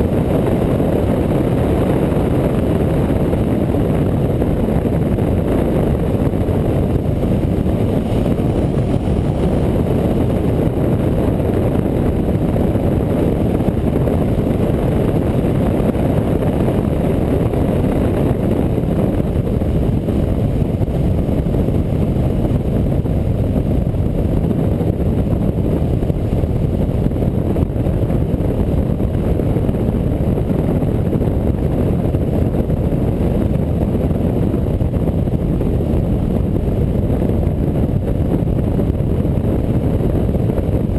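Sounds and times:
wind rushing over microphone: 0.0 - 40.9
motorcycle engine: 5.0 - 15.4.

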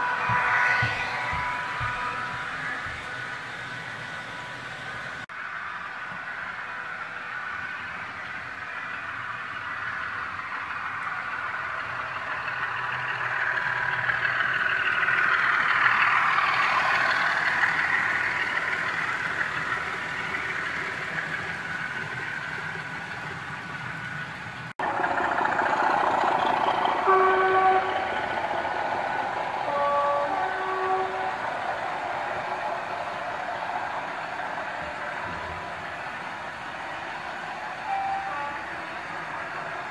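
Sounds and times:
model locomotive two-tone horn: 0.0 - 3.2, 27.0 - 28.2, 29.6 - 31.5, 37.8 - 39.3
model train wheels rumbling on track: 0.0 - 39.9.

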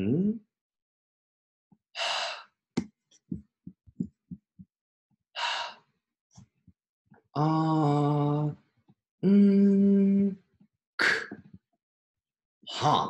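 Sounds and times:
man's held voiced sound: 0.0 - 0.4.

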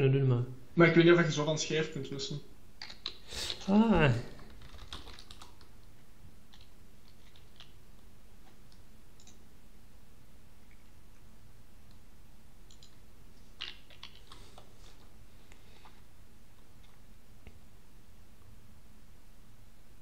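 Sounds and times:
low steady hiss: 0.0 - 20.0
keyboard keystrokes clicking: 4.6 - 5.7.

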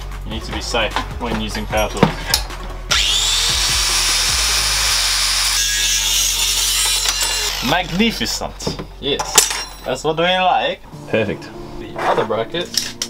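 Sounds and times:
angle grinder cutting metal: 2.9 - 8.5.

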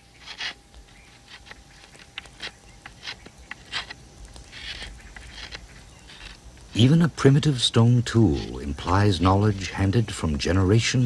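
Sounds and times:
scraping rustle: 0.0 - 9.9.

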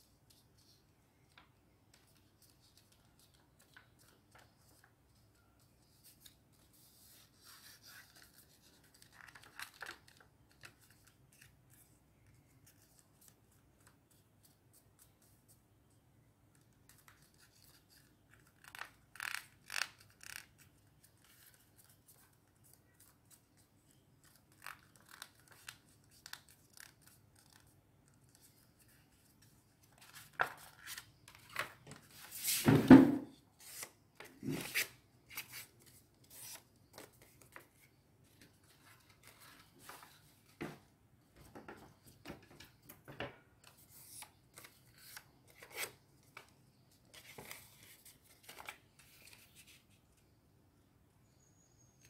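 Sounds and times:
paper rustling and crinkling: 47.1 - 49.9.

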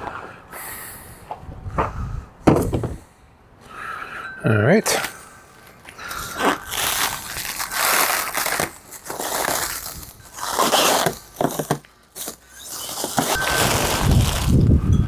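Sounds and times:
plastic stretch wrap crinkling: 6.0 - 14.8.

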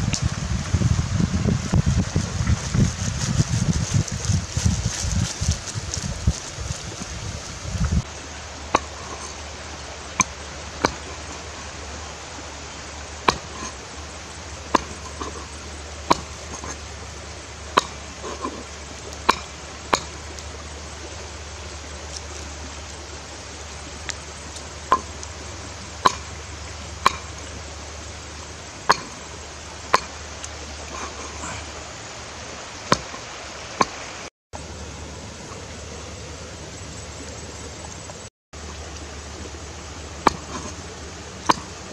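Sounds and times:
steady hiss: 0.0 - 41.9
cleaver chopping on wooden board: 13.3 - 13.7, 14.7 - 15.4, 16.1 - 16.7, 19.3 - 20.2, 26.0 - 26.3, 28.9 - 29.2, 32.9 - 33.2, 40.2 - 40.8, 41.5 - 41.7.

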